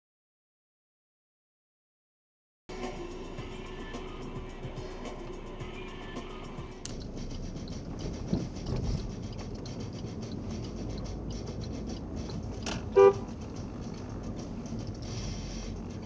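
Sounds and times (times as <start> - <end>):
car engine and tyre noise: 2.7 - 16.0
car horn toot: 12.9 - 13.4.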